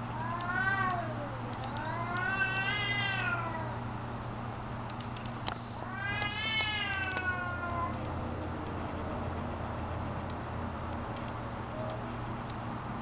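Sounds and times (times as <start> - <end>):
cats yowling: 0.2 - 3.8, 5.8 - 8.0.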